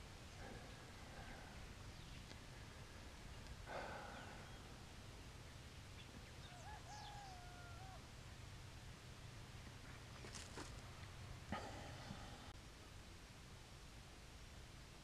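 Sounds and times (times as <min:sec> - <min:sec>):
bird chirp: 0:00.2 - 0:08.6.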